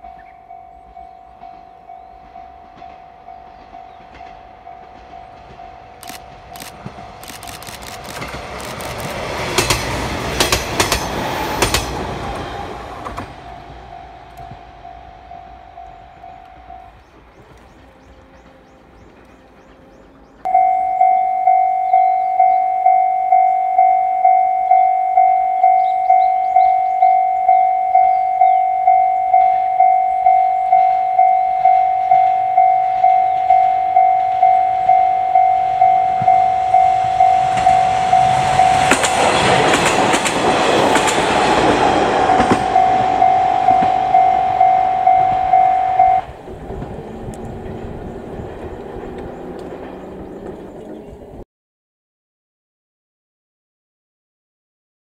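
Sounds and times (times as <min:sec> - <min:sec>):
level crossing bell ringing: 0:00.0 - 0:06.0, 0:20.5 - 0:39.0, 0:42.2 - 0:46.3
diesel train passing: 0:00.0 - 0:51.4
wheels clicking over rail joints: 0:01.4 - 0:13.6, 0:37.0 - 0:45.6, 0:46.3 - 0:51.4.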